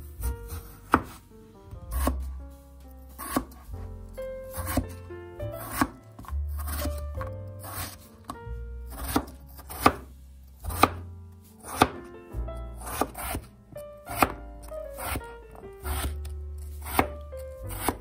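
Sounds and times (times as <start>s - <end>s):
background music: 0.0s - 18.0s
knife cutting on plastic board: 0.5s - 1.2s, 1.9s - 2.3s, 3.1s - 3.6s, 4.5s - 5.0s, 5.6s - 11.0s, 11.6s - 12.0s, 12.8s - 13.5s, 14.1s - 15.2s, 15.8s - 18.0s.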